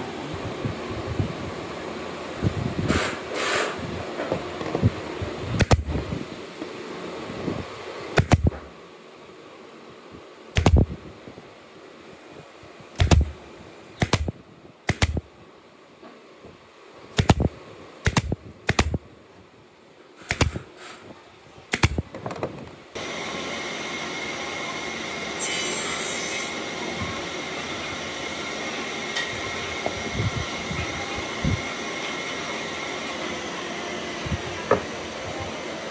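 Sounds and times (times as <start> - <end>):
steady hum with high tone: 0.0 - 22.1, 22.8 - 35.9
nail gun firing into boards: 5.6 - 5.9, 8.2 - 8.6, 10.6 - 10.9, 13.0 - 13.3, 14.0 - 14.3, 14.9 - 15.2, 17.2 - 19.0, 20.3 - 20.6, 21.7 - 22.1.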